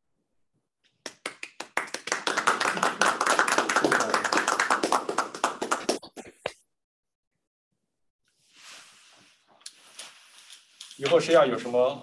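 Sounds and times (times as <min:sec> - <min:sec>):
audience applauding: 0:01.0 - 0:06.2.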